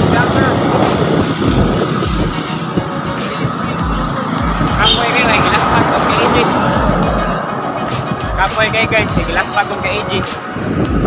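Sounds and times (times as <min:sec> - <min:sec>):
background music with a beat: 0:00.0 - 0:11.0
wind rumble on microphone: 0:00.0 - 0:11.0.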